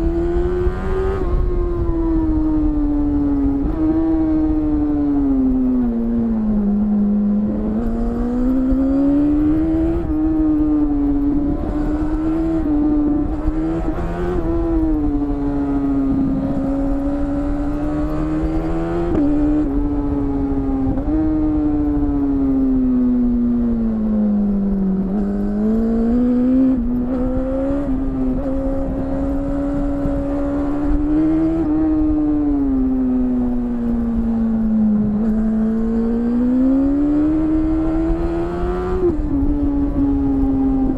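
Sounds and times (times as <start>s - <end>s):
motorcycle engine revving: 0.0s - 40.9s
wind rush: 7.5s - 23.9s, 25.2s - 40.9s.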